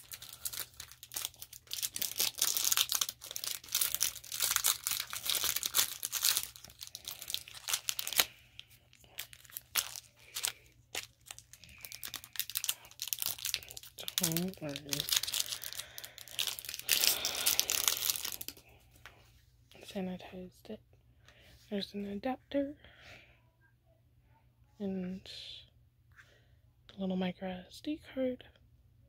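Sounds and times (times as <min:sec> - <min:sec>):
packaging crinkling and tearing: 0:00.0 - 0:18.6.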